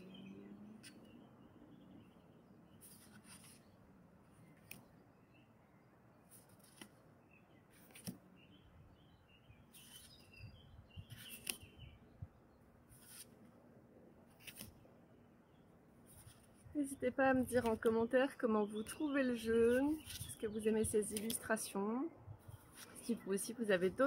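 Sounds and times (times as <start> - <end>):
faint bird chirps: 0.0 - 6.4, 7.2 - 12.6
cards swishing: 13.0 - 13.3.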